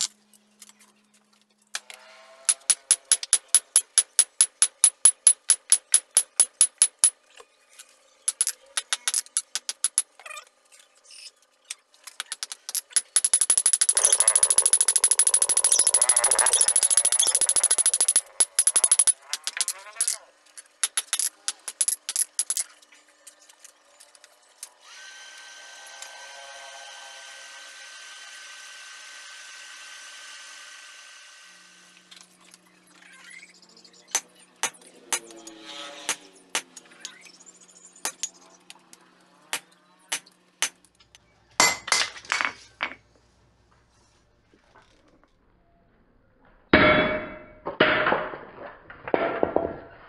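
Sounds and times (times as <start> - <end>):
hammer striking steel on anvil: 2.5 - 7.1, 41.6 - 42.6, 46.8 - 48.4.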